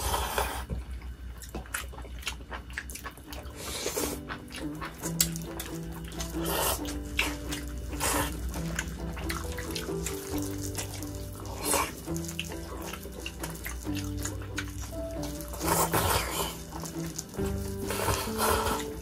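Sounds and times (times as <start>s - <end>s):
background music with bass: 4.5s - 19.0s.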